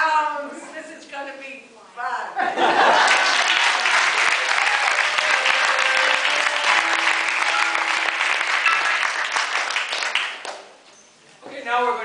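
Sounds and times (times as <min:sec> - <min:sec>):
audience applauding: 0:02.8 - 0:10.7.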